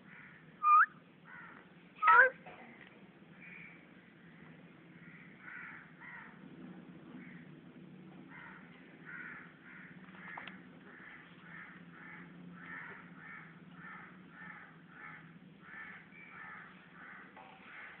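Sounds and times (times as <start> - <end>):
parakeet squawking: 0.6 - 0.9, 2.0 - 2.4.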